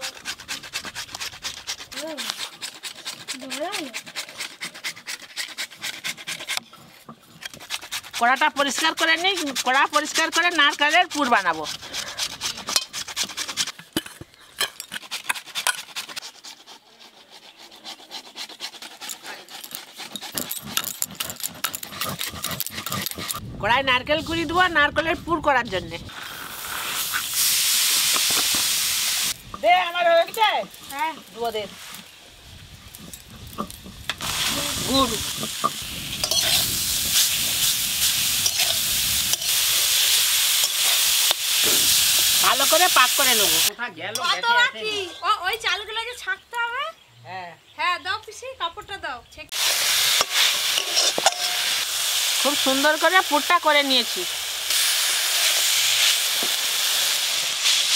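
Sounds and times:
metal spatula scraping wok: 0.0 - 23.4, 26.0 - 45.6, 49.5 - 57.9
hands rubbing flour over sieve: 7.6 - 13.8
steady hiss: 26.1 - 32.9, 34.0 - 43.7, 49.6 - 57.9.

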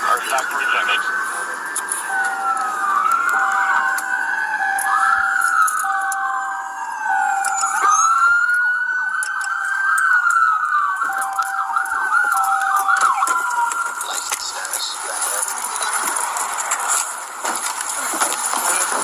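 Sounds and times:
police sirens wailing: 0.0 - 19.0.

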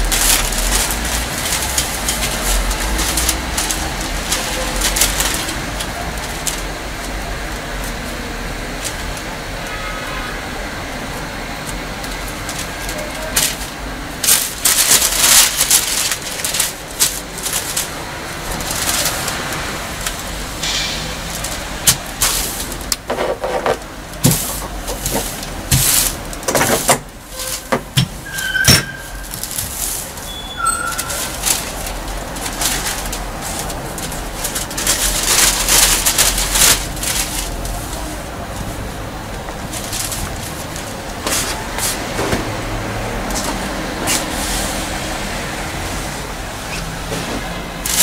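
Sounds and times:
paper rustling and crinkling: 0.0 - 9.4, 11.1 - 45.1, 46.6 - 48.0.

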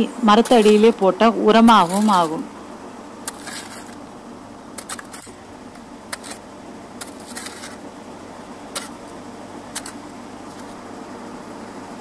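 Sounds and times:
hoe striking hard soil: 0.4 - 2.5, 3.2 - 4.0, 4.8 - 5.4, 6.1 - 6.4, 7.0 - 7.8, 8.7 - 10.8.

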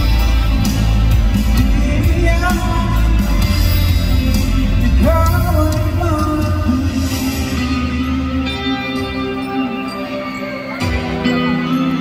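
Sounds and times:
pop backing track with bass: 0.0 - 12.0
man singing into a microphone: 1.5 - 8.5.

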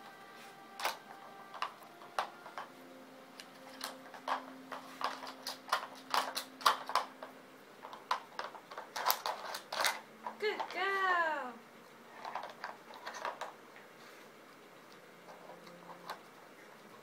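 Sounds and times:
plastic puzzle pieces clicking: 0.8 - 2.7, 3.3 - 10.8, 12.1 - 13.6, 14.9 - 16.4.

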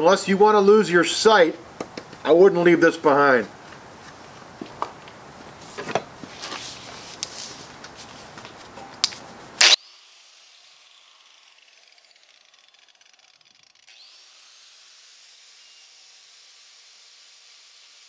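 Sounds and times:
angle grinder wire brush whine: 9.6 - 18.0.

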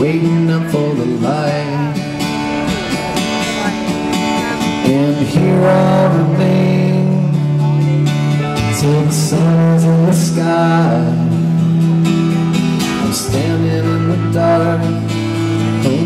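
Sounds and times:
man singing: 0.0 - 2.7, 3.3 - 16.0
live rock band playing: 0.0 - 16.0
cymbal crashes: 5.3 - 8.8.

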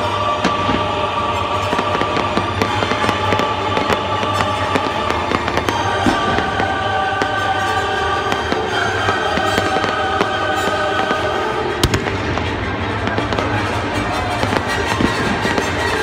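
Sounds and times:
fireworks bangs and crackles: 0.0 - 16.0
music playing: 0.0 - 16.0.

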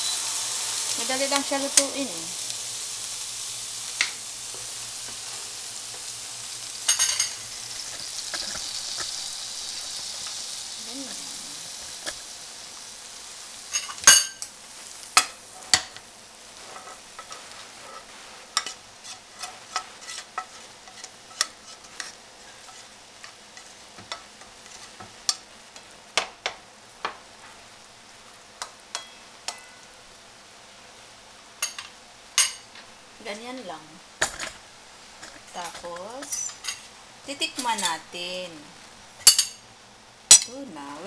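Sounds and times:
faint frying hiss: 0.0 - 41.0
spoon scraping frying pan: 16.6 - 25.0.

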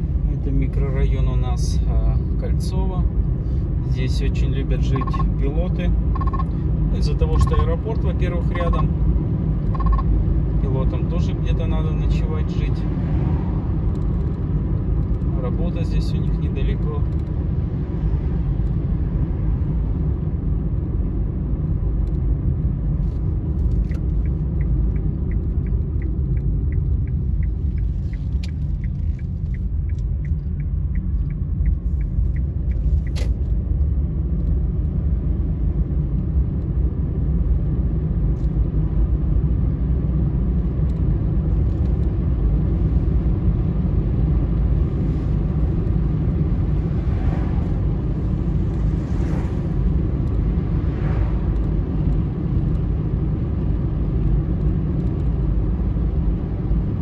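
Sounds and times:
car cabin road rumble: 0.0 - 57.0
quick ticking: 4.9 - 5.3, 6.1 - 6.6, 7.4 - 7.8, 9.7 - 10.0.

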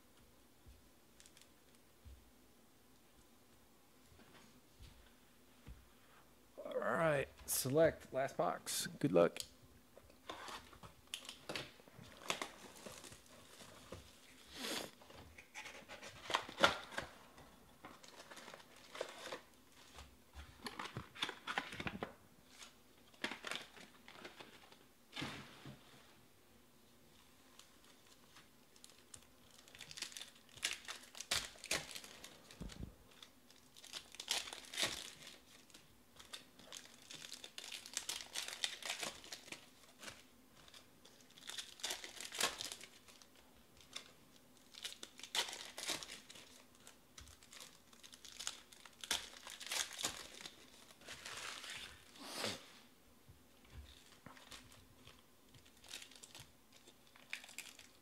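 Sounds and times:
foil wrappers crinkling and tearing: 10.2 - 25.4, 27.1 - 52.6, 53.7 - 58.0.

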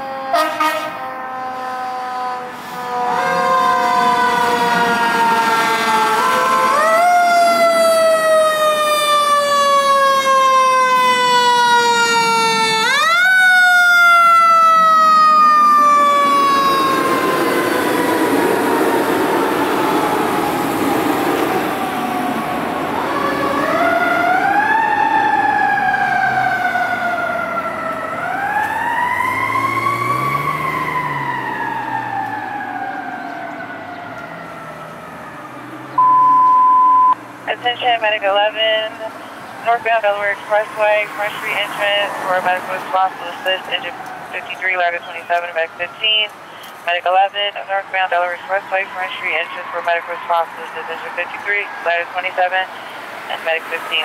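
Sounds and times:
mechanical sirens wailing: 0.0 - 54.0
radio alert tone: 36.0 - 54.0.

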